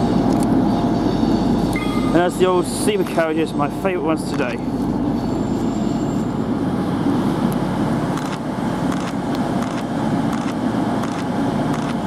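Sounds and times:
diesel train engines idling: 0.0 - 12.0.

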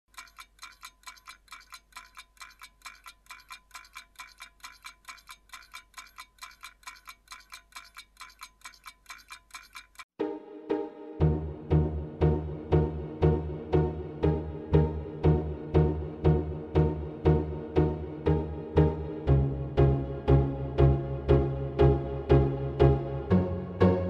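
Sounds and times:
clockwork ticking: 0.1 - 10.2
music: 10.2 - 24.0.

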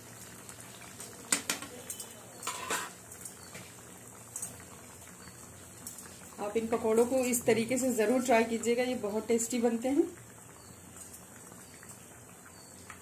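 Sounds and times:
deep-frying sizzle in oil: 0.0 - 13.0
utensil scraping against pan: 2.4 - 3.0.

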